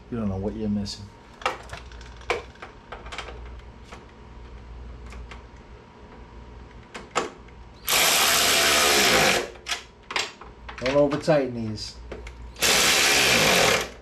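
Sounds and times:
electric ratchet motor running: 0:07.8 - 0:09.6, 0:12.6 - 0:14.0.

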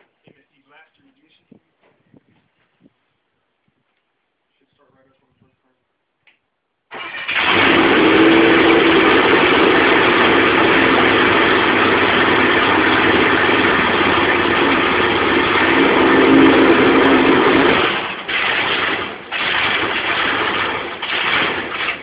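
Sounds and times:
boat engine starting and running: 0:06.9 - 0:22.0.

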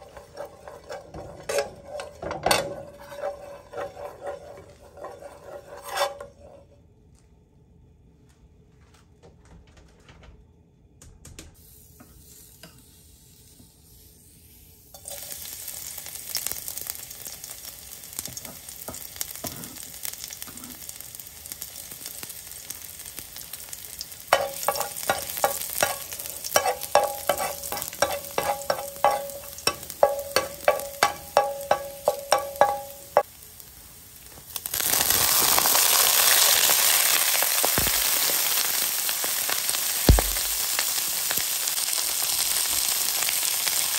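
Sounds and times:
loud sizzle of vegetables: 0:00.0 - 0:03.9, 0:11.6 - 0:43.9
garlic sizzling in hot oil: 0:00.0 - 0:06.2, 0:11.8 - 0:43.9
metal ladle tapping pan: 0:24.3 - 0:33.2.

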